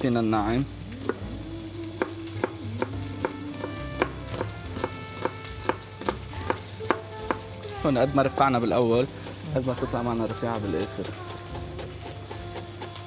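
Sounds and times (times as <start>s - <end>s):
knife chopping on plastic board: 4.0s - 7.4s, 10.8s - 13.0s.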